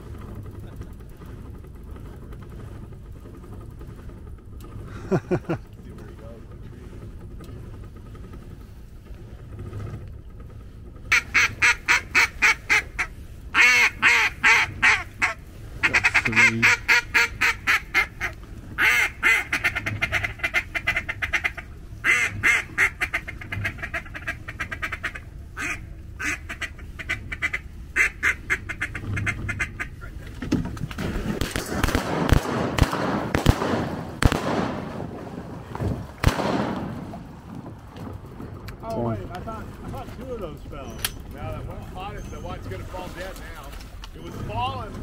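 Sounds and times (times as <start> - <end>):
duck call quacking: 11.1 - 30.0.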